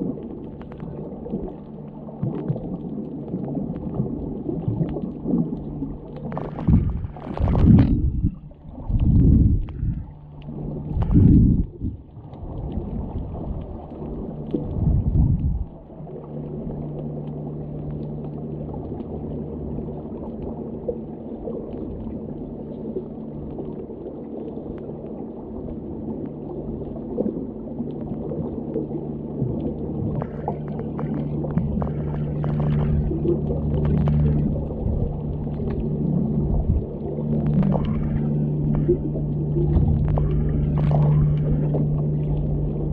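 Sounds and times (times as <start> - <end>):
low steady hum: 0.0 - 42.9
underwater rushing surges: 0.0 - 42.9.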